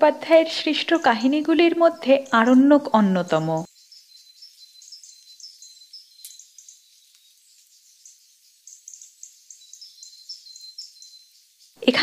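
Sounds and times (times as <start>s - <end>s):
small high-pitched chirps: 3.6s - 11.9s.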